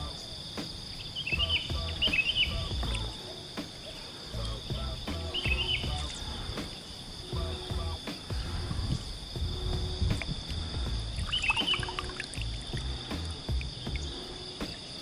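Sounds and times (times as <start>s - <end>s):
bird chirping: 0.0s - 15.0s
high-pitched insect chorus: 0.0s - 15.0s
low rumbles on microphone: 1.3s - 3.2s, 4.4s - 14.3s.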